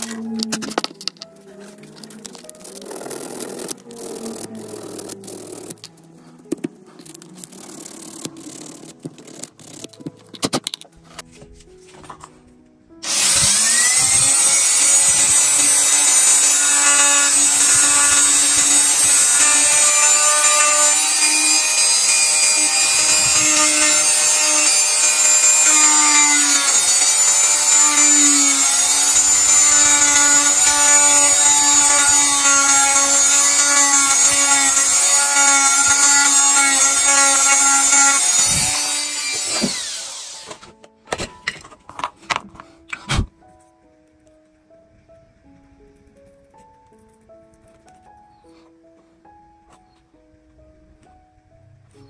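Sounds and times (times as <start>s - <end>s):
power tool high whine: 13.0s - 40.6s.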